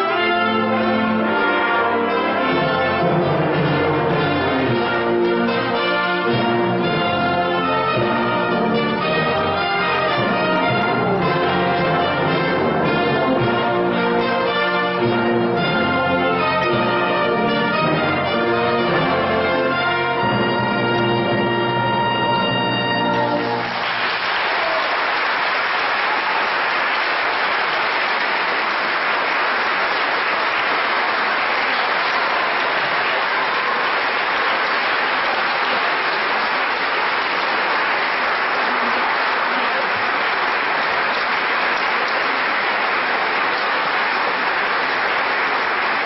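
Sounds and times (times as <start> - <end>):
brass ensemble chord: 0.0 - 24.3, 27.9 - 46.0
audience applause: 23.0 - 46.0.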